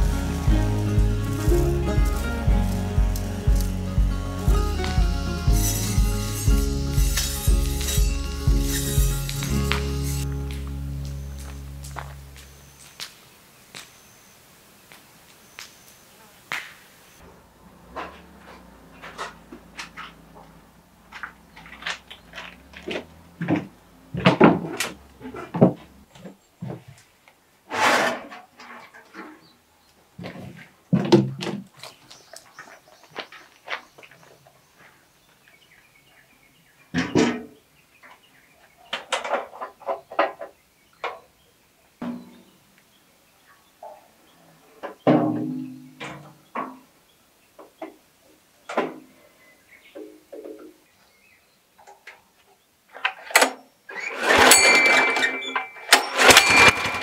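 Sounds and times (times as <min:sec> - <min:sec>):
knocks and clunks on a shelf: 0:22.8 - 0:27.0, 0:30.2 - 0:31.7
metal can clanking on metal: 0:54.0 - 0:57.0.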